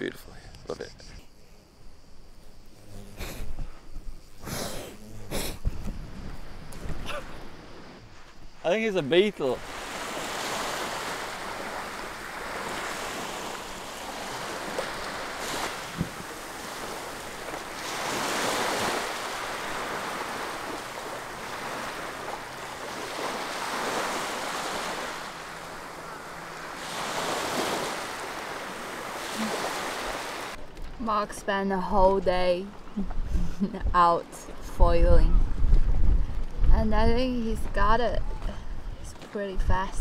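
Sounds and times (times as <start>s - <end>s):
sea waves washing in: 7.4s - 30.6s.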